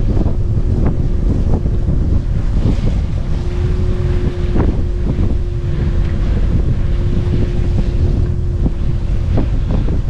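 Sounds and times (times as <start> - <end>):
steady hum: 0.0 - 10.0
water slapping along hull: 0.0 - 10.0
wind buffeting microphone: 0.0 - 10.0.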